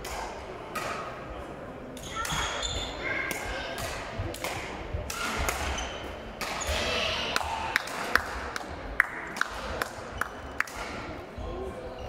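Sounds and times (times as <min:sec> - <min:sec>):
shoe squeaks: 0:02.0 - 0:03.0, 0:05.7 - 0:06.9
racket hitting shuttlecock: 0:03.3 - 0:05.8, 0:06.4 - 0:06.8.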